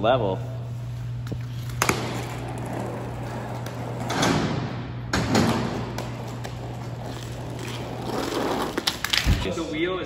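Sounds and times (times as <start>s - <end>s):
skateboard wheels rolling: 1.5s - 9.5s.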